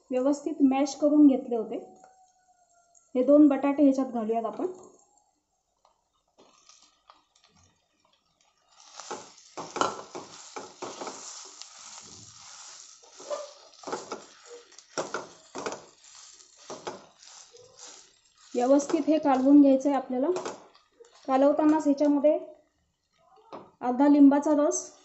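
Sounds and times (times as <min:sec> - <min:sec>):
spatula scraping pan: 0:08.4 - 0:19.7.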